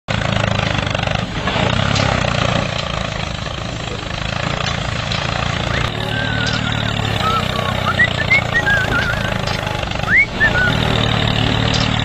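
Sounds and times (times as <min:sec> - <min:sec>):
toy motor buzzing whir: 0:05.6 - 0:12.0.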